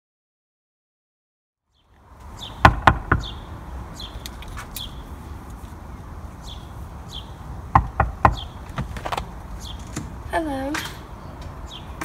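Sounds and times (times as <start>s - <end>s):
outdoor background noise: 1.6s - 12.0s
bird chirping: 1.7s - 12.0s
knocks on door: 2.6s - 3.3s, 7.7s - 8.9s.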